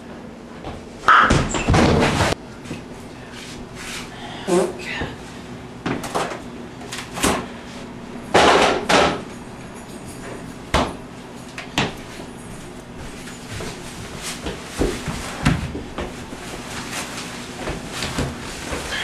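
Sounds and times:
knocks and thumps in kitchen: 0:00.6 - 0:02.8, 0:08.3 - 0:09.3, 0:10.7 - 0:11.1, 0:13.6 - 0:16.8
refrigerator door banged shut: 0:01.1 - 0:02.3, 0:08.4 - 0:09.2.

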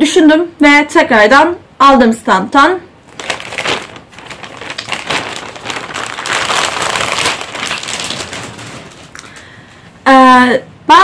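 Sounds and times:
plastic bag rustling and crinkling: 0:03.0 - 0:09.7.

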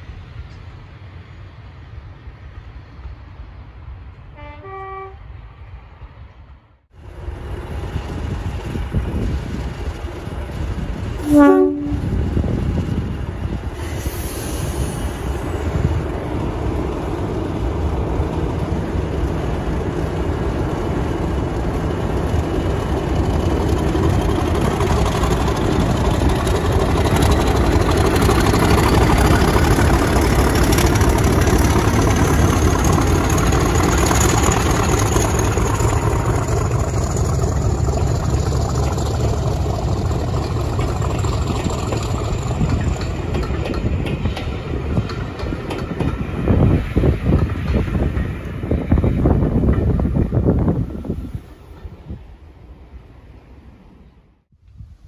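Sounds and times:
diesel locomotive engine working: 0:00.0 - 0:54.4
locomotive horn blast: 0:04.3 - 0:05.3, 0:11.2 - 0:12.2.

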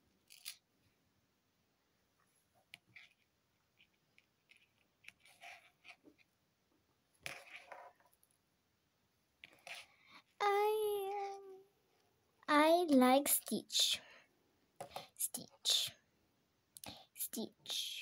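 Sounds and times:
fingers handling modelling clay: 0:02.2 - 0:06.4, 0:09.4 - 0:10.4.

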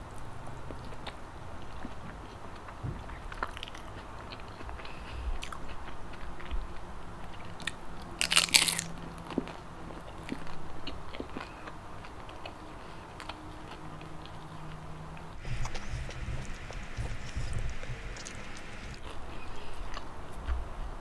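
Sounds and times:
wet chewing clicks: 0:00.0 - 0:20.4
crisp crunch of a bite: 0:07.4 - 0:09.6.

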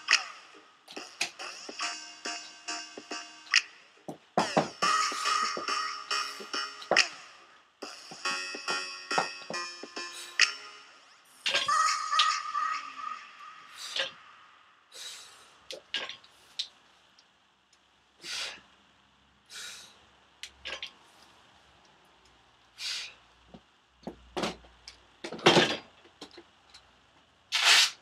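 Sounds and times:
forceful hissing breaths: 0:13.6 - 0:16.7, 0:18.2 - 0:18.7, 0:19.4 - 0:20.1, 0:22.7 - 0:23.3.

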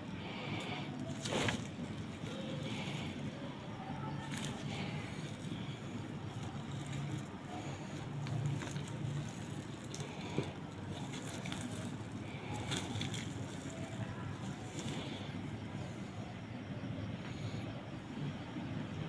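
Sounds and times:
steady low hum: 0:00.0 - 0:19.0
wet squelching: 0:04.2 - 0:15.4.

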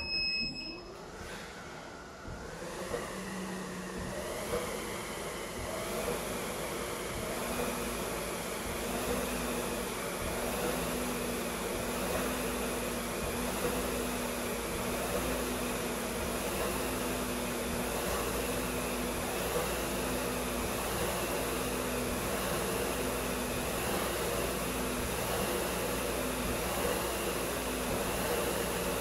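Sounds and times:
fan flywheel whirring: 0:00.0 - 0:29.0.

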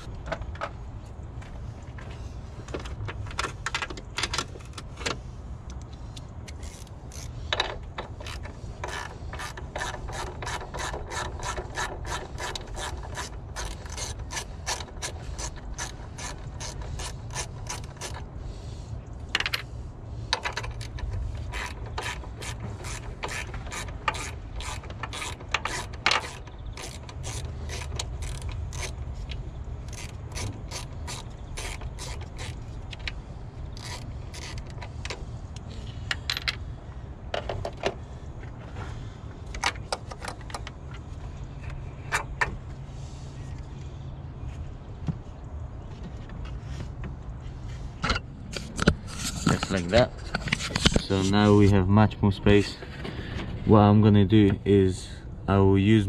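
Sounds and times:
hand ratchet clicking: 0:06.5 - 0:18.2, 0:20.4 - 0:33.1, 0:33.8 - 0:35.0.

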